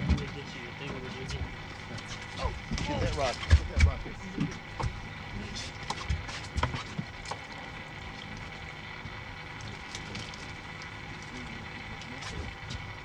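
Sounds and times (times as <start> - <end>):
low hum: 0.0 - 13.0
knocks of rods and net: 5.8 - 7.4.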